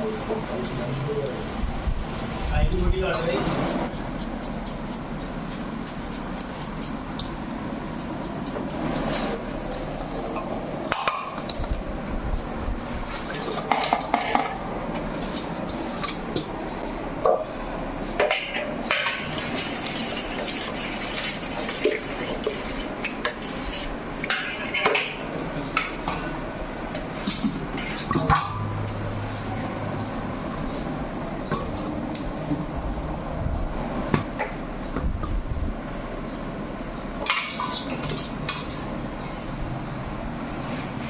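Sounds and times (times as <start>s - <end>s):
ladle stirring thick custard: 0.4s - 10.3s, 19.2s - 24.8s
steady low rumble: 0.5s - 9.7s.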